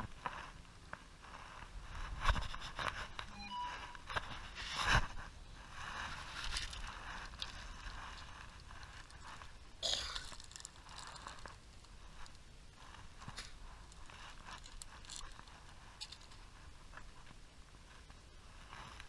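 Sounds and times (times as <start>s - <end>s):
fishing tackle rustling and clicking: 6.0s - 16.5s.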